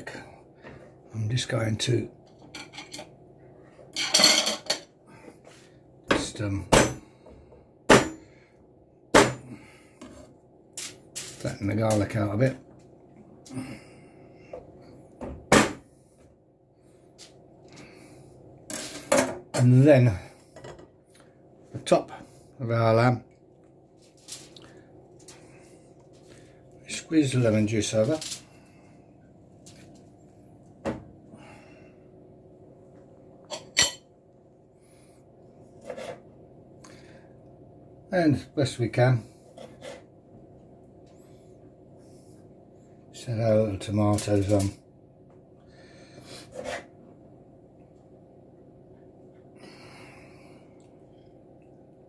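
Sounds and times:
faint steady hum: 0:00.0 - 0:52.0
aluminium foil rustling: 0:24.0 - 0:24.6
aluminium foil crinkling: 0:24.0 - 0:25.4.

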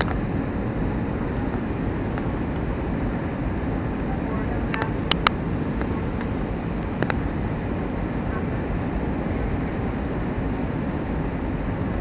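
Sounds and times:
jet engine and airflow noise: 0:00.0 - 0:12.0.

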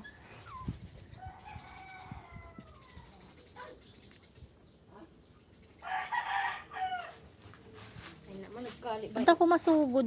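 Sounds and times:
rooster crowing: 0:01.2 - 0:03.0, 0:05.8 - 0:07.2.

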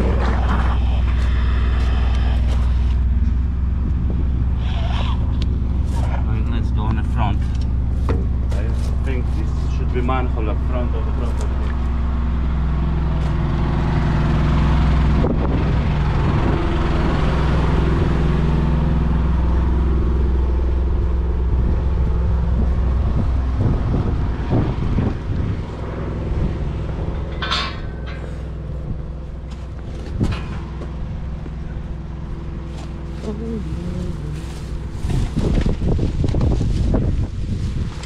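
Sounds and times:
large engine humming: 0:00.0 - 0:38.0
sharp knocks and clatter: 0:06.9 - 0:09.1, 0:27.1 - 0:28.6.

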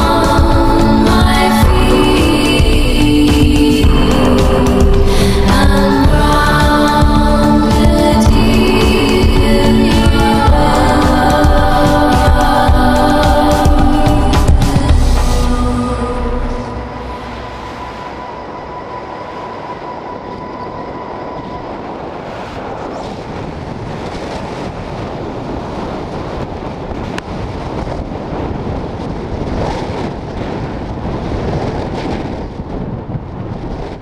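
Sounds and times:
background music tone: 0:00.0 - 0:22.8
rushing wind: 0:00.0 - 0:34.0.

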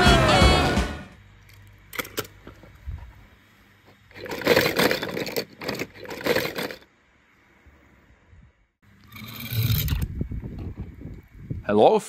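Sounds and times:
toy cars rattling in plastic basket: 0:04.1 - 0:06.9.

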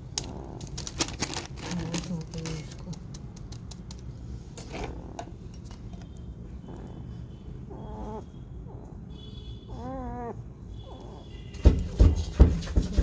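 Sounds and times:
puppy whimpering: 0:06.6 - 0:09.1, 0:09.7 - 0:11.4
puppy crying: 0:06.6 - 0:11.4.

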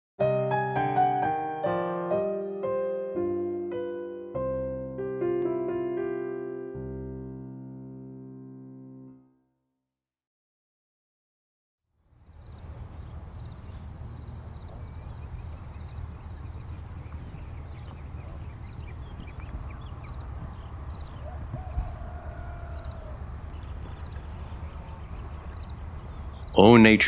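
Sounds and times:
insects chorus: 0:12.0 - 0:27.0.

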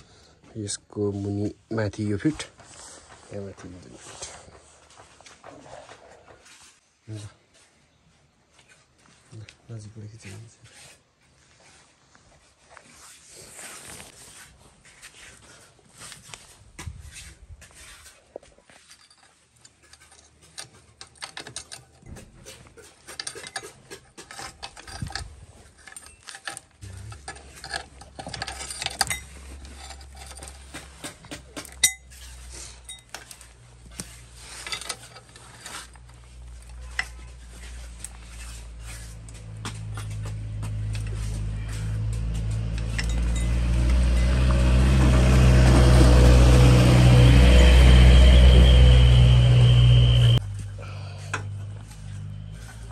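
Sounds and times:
metal tools clinking: 0:18.7 - 0:49.5
steady low hum: 0:46.4 - 0:52.6.

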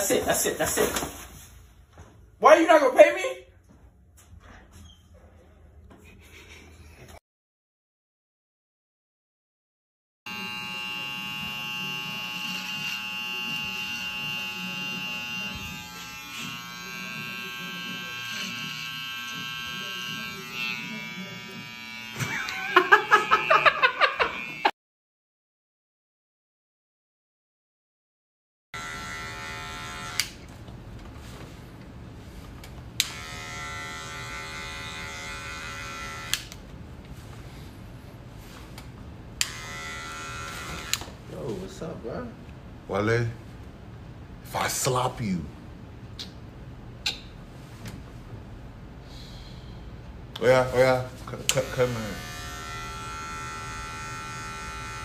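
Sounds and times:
electric hair clippers buzzing: 0:10.3 - 0:24.7, 0:28.8 - 0:30.5, 0:33.0 - 0:36.7, 0:39.4 - 0:41.2, 0:51.4 - 0:55.0.

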